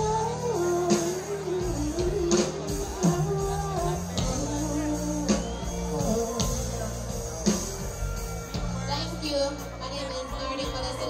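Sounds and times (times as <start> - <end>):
woman singing into a microphone: 0.0 - 6.8
backing track with bass and beat: 0.0 - 11.0.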